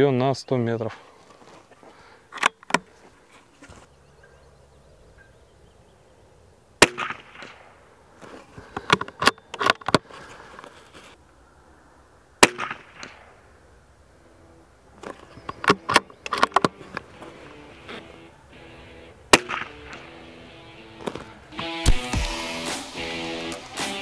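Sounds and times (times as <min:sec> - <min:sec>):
rifle shots: 0:06.8 - 0:07.8, 0:12.4 - 0:13.3, 0:19.3 - 0:20.1
rifle bolt clicks: 0:15.0 - 0:17.0.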